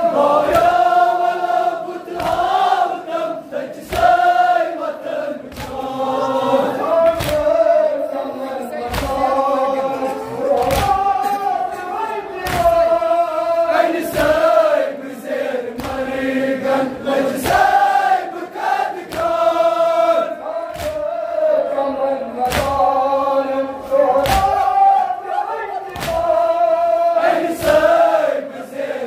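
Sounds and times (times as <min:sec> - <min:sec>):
men chanting in unison: 0:00.0 - 0:29.0
hands slapping chests: 0:02.1 - 0:02.6, 0:03.8 - 0:04.3, 0:05.5 - 0:05.9, 0:07.0 - 0:07.5, 0:08.9 - 0:09.2, 0:10.5 - 0:11.2, 0:12.4 - 0:12.9, 0:15.8 - 0:16.1, 0:19.0 - 0:19.6, 0:20.7 - 0:21.1, 0:22.4 - 0:22.9, 0:24.2 - 0:24.8, 0:25.8 - 0:26.5, 0:27.5 - 0:28.0.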